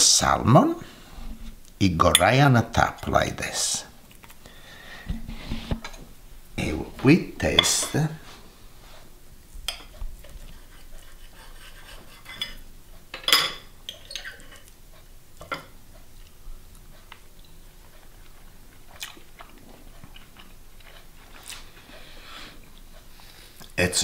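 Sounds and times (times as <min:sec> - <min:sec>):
cutlery clinking and scraping on plate: 0:07.6 - 0:08.1, 0:09.7 - 0:12.6, 0:13.2 - 0:14.7
man chewing: 0:09.9 - 0:12.0, 0:15.9 - 0:23.8.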